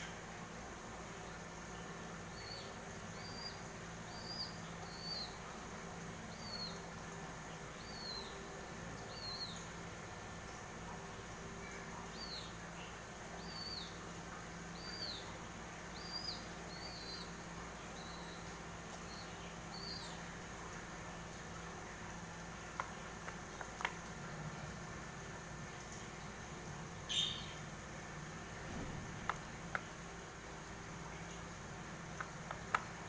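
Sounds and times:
steady low hum: 0.0s - 33.0s
bird chick chirping: 2.3s - 5.4s, 32.1s - 33.0s.

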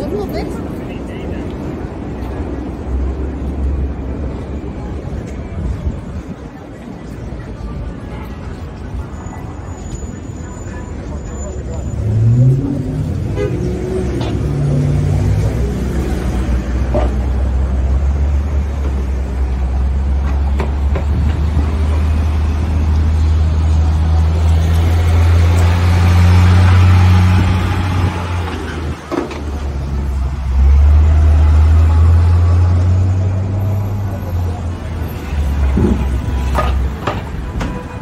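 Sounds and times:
low engine rumble of traffic: 0.0s - 38.0s
bus pulling past: 9.0s - 37.0s.

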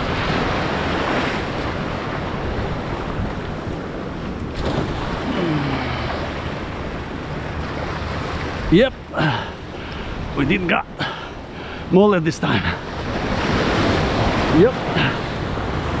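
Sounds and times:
wind on microphone: 0.0s - 10.5s
surf churning against rocks: 0.0s - 16.0s.

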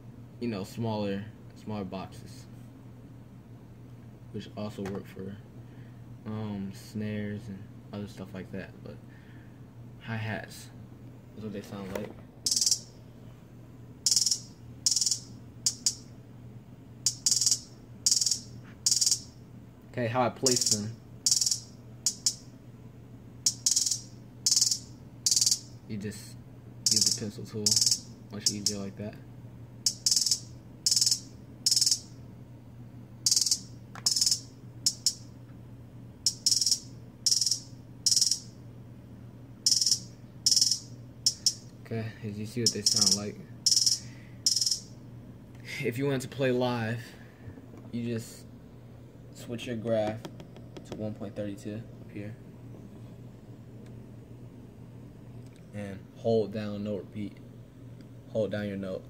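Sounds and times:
low steady hum: 0.0s - 59.0s.

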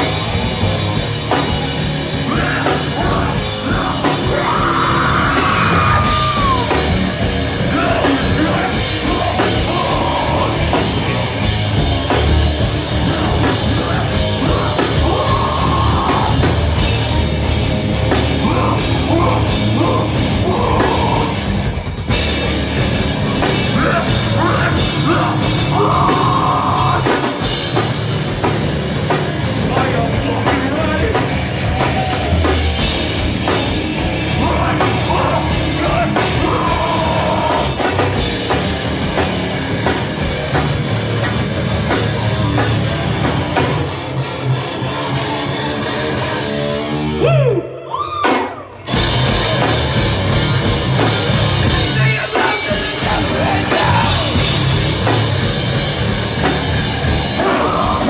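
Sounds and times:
pounding drum kit: 0.0s - 44.2s, 48.1s - 58.0s
bass guitar: 0.0s - 58.0s
distorted electric guitars: 0.0s - 58.0s
screamed vocals: 2.2s - 11.0s, 13.0s - 16.8s, 18.2s - 21.5s, 23.6s - 27.5s, 34.3s - 38.0s, 47.1s - 49.5s, 52.0s - 54.6s, 57.0s - 58.0s.

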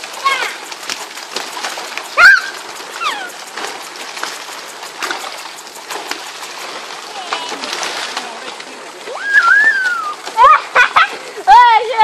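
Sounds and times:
small fish splashing in water: 0.0s - 11.3s.

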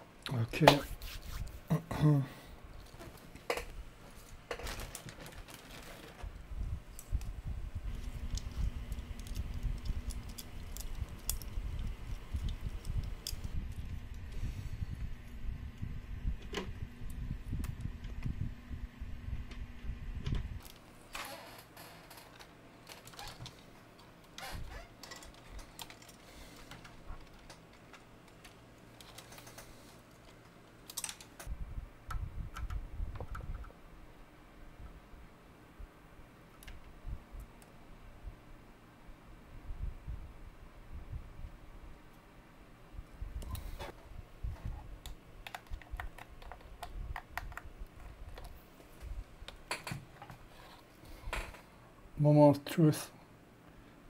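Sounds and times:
small clicks of handling wires: 2.7s - 14.4s, 20.2s - 21.2s, 22.1s - 31.5s, 36.5s - 37.8s, 43.4s - 51.7s.

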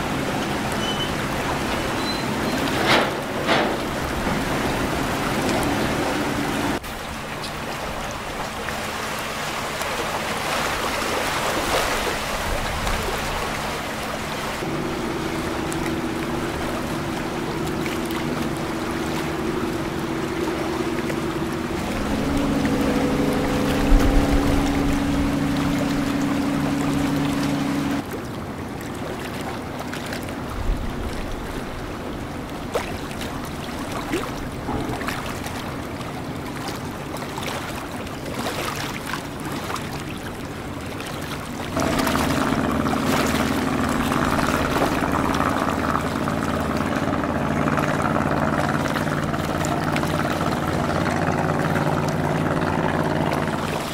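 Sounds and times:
boat engines running: 0.0s - 53.9s
water washing against hulls: 0.0s - 53.9s
droning engine note: 13.1s - 28.0s, 41.7s - 53.9s.

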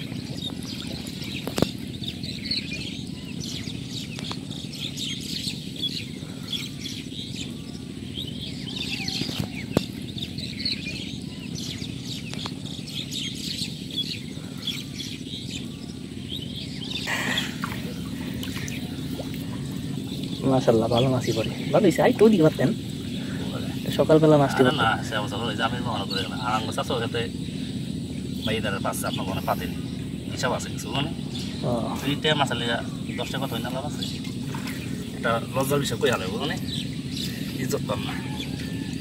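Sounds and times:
water splashing and dripping: 0.0s - 1.9s, 17.2s - 20.5s
small birds chirping: 0.0s - 39.0s.

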